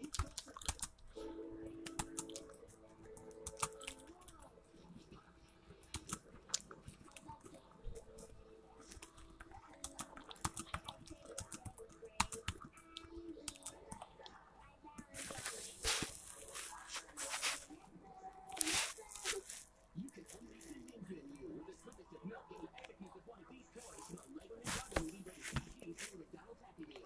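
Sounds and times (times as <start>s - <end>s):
faint music: 0.0s - 27.0s
keyboard keys clicking: 1.8s - 4.2s.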